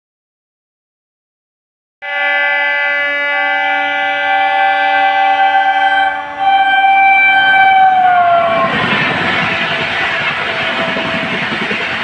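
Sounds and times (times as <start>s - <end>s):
locomotive air horn blast: 2.0s - 8.7s.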